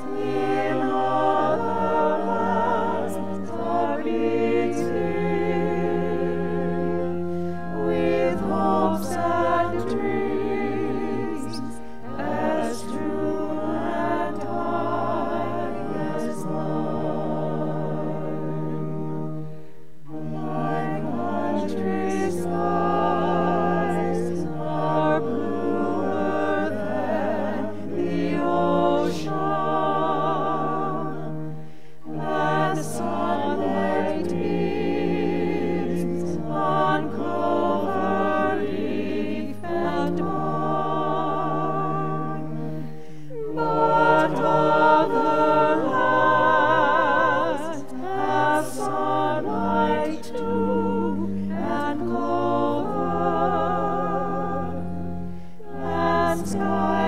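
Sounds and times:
choir singing a hymn: 0:00.0 - 0:57.0.

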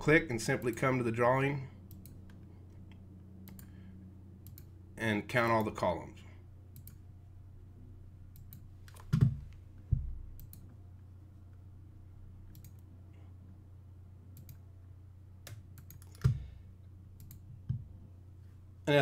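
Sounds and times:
faint low hum: 0:00.0 - 0:19.0
computer mouse clicking: 0:01.9 - 0:02.4, 0:03.4 - 0:03.8, 0:04.4 - 0:04.7, 0:06.7 - 0:07.0, 0:08.3 - 0:09.4, 0:10.4 - 0:10.8, 0:12.5 - 0:12.9, 0:14.3 - 0:14.6, 0:15.4 - 0:16.5, 0:17.2 - 0:17.9.

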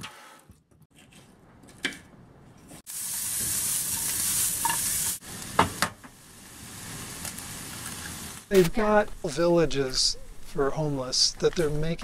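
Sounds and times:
food sizzling in a pan: 0:02.9 - 0:08.5.

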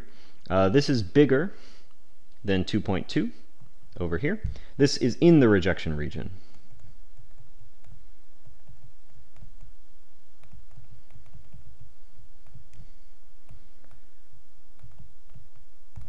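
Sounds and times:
soft low thumps: 0:02.4 - 0:16.0
stylus clicks on tablet screen: 0:06.5 - 0:09.7, 0:10.4 - 0:11.7.

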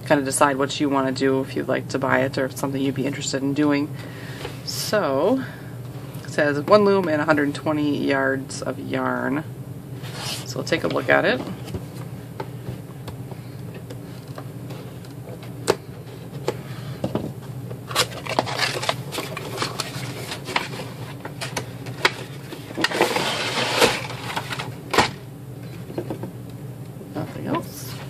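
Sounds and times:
cardboard packaging rustling: 0:17.8 - 0:25.2.

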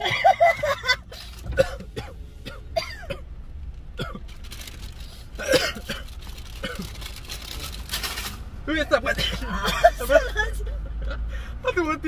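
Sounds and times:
people coughing: 0:00.0 - 0:03.2, 0:04.0 - 0:04.2, 0:05.4 - 0:06.9, 0:09.1 - 0:10.7.

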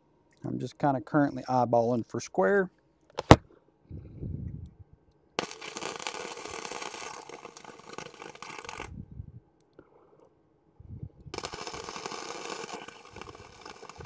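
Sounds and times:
electric welder arc crackling: 0:05.4 - 0:09.0, 0:11.2 - 0:14.0.

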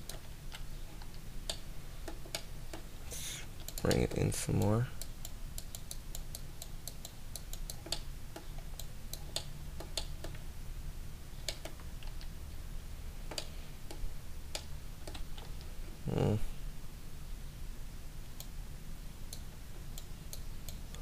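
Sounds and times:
low steady hum: 0:00.0 - 0:21.0
computer controls clicking: 0:03.6 - 0:10.4, 0:11.4 - 0:12.3, 0:13.3 - 0:15.7.

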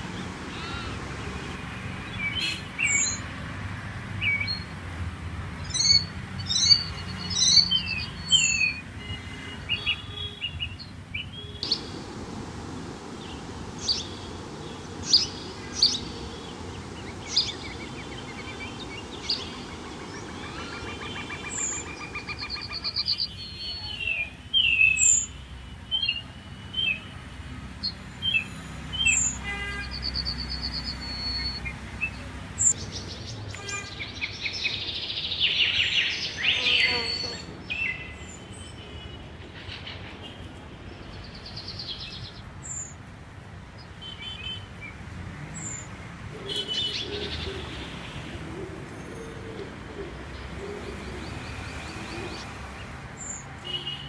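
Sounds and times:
small birds chirping: 0:05.6 - 0:27.1, 0:27.8 - 0:43.0, 0:45.6 - 0:54.0
high hiss: 0:11.6 - 0:22.3.

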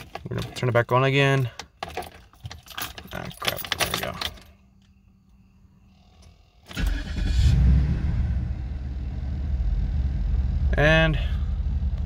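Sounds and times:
car engine cranking and starting: 0:06.4 - 0:12.0
car engine idling: 0:06.8 - 0:12.0.

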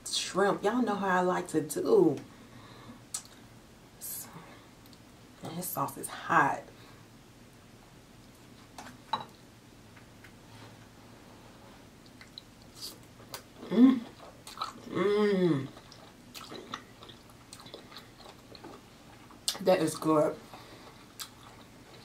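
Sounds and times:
woman chewing: 0:12.0 - 0:22.0
woman humming mmm: 0:13.6 - 0:14.2, 0:14.8 - 0:15.8.

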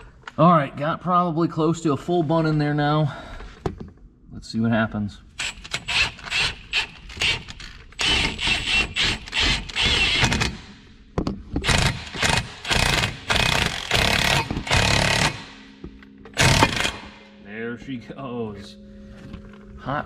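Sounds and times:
impact wrench bursts: 0:05.4 - 0:10.8, 0:11.6 - 0:17.3.

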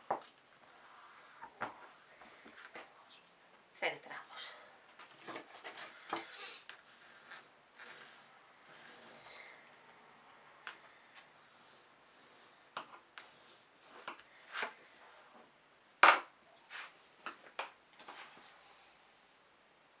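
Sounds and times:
bone folder rubbing paper: 0:06.8 - 0:09.2.

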